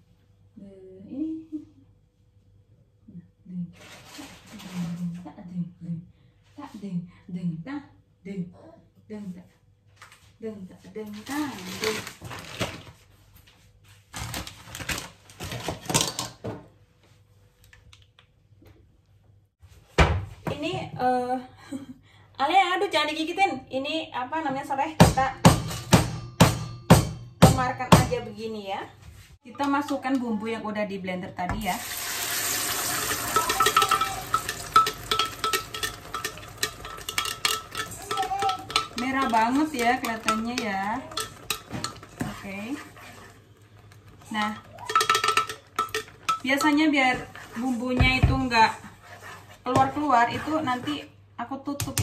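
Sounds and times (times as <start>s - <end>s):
paste sizzling in hot oil: 31.8s - 39.3s
spatula scraping and tapping jug: 33.0s - 51.1s.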